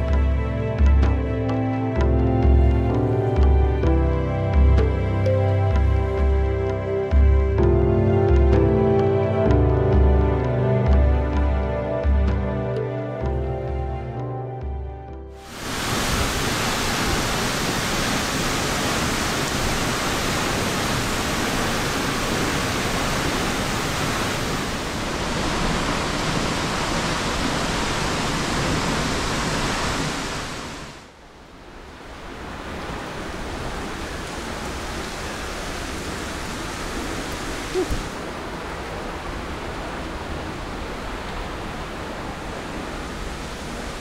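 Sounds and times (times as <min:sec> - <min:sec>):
waterfall rushing: 0:15.4 - 0:44.0.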